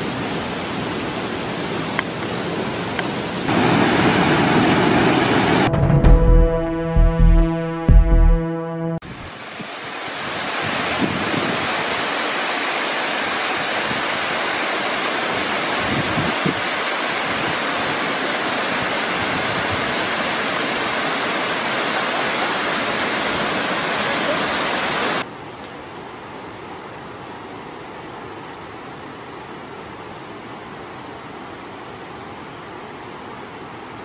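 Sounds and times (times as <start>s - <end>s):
waterfall rushing over rocks: 0.0s - 5.7s, 9.1s - 25.3s.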